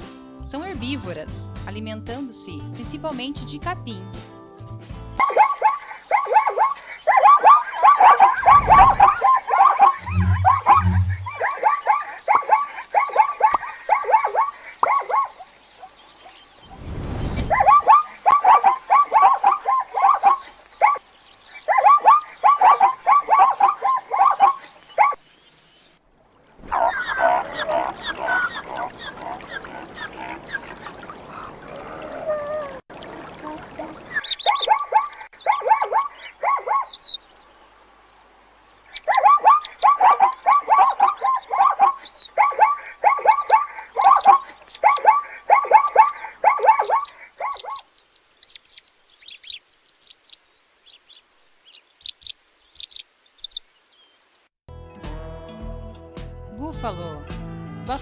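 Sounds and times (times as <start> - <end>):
zebras barking: 5.2 - 16.3, 17.5 - 21.0, 21.6 - 25.2, 26.6 - 37.0, 39.0 - 47.8
low rumble: 10.0 - 11.4.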